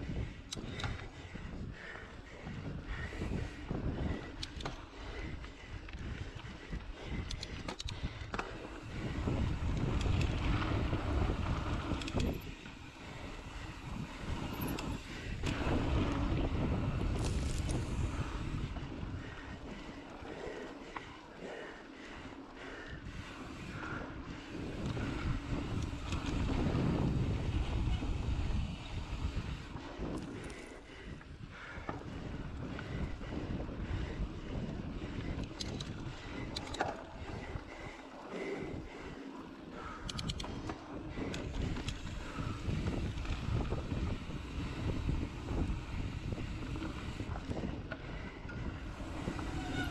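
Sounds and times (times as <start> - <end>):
wind rushing over microphone: 0.0 - 20.0, 22.8 - 39.2, 39.8 - 49.9
bike tyre rumble on dirt: 0.0 - 49.9
bike rattling clicks: 0.1 - 49.9
rattling clicks: 35.4 - 37.0, 40.0 - 42.1.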